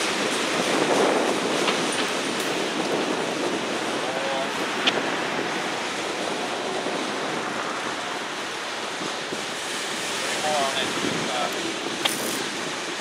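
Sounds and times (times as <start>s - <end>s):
freight train wheels on rail: 0.0s - 13.0s
sharp click: 12.0s - 12.4s.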